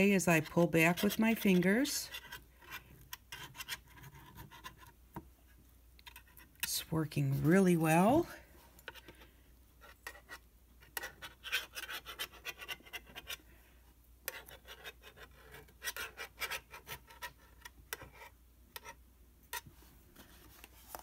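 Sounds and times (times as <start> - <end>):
butter knife scraping: 0.0 - 5.0, 9.8 - 13.5, 14.2 - 19.7.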